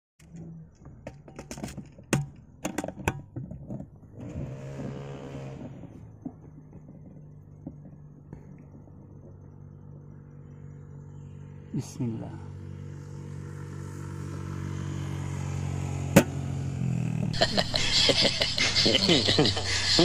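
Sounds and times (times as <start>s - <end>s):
sharp clicks and knocks: 0.2s - 4.0s
vehicle engine passing: 4.0s - 20.0s
steady low hum: 5.6s - 16.4s, 17.4s - 20.0s.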